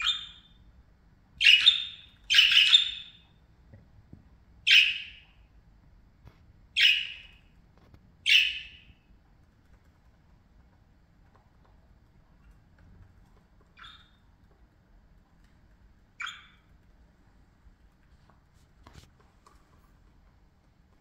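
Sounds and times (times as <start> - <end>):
parakeet chirping calls: 0.0 - 0.6, 1.4 - 3.4, 4.6 - 5.5, 6.7 - 7.5, 8.2 - 9.1, 13.7 - 14.4, 16.1 - 16.8.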